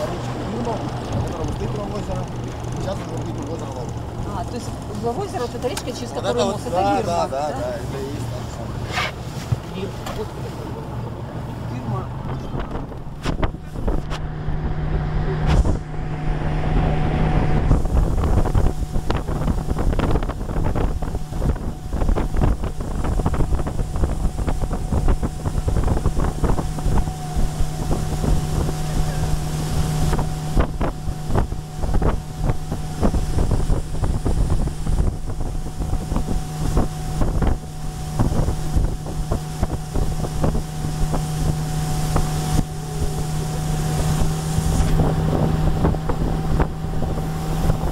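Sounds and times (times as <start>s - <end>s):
motorboat engine humming: 0.0s - 47.9s
wind buffeting microphone: 12.1s - 47.9s
hull knocking on water: 17.5s - 47.9s.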